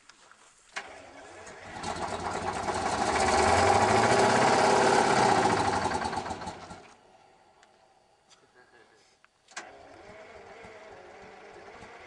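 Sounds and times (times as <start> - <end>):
tractor diesel engine revving: 0.8 - 7.0, 9.6 - 12.0.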